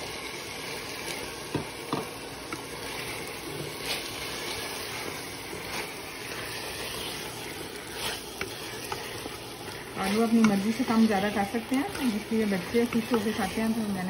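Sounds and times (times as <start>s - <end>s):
meat and potatoes sizzling in oil: 0.0s - 14.0s
wooden spoon knocking on pot: 1.5s - 2.1s.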